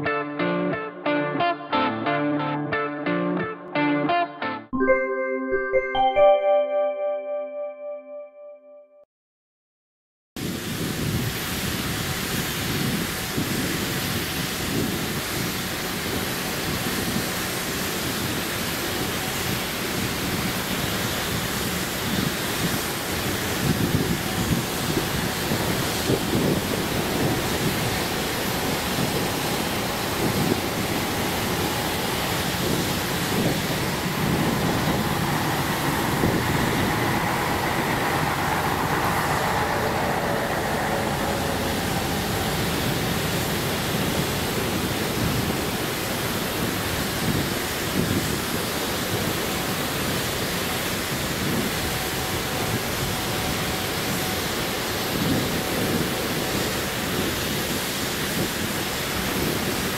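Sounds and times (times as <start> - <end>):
tram rumbling on rails: 15.2 - 59.9.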